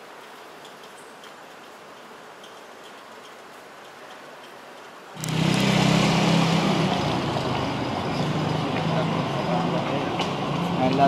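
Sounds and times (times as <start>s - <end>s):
traffic hiss: 0.0s - 11.0s
vehicle engine humming: 5.2s - 11.0s.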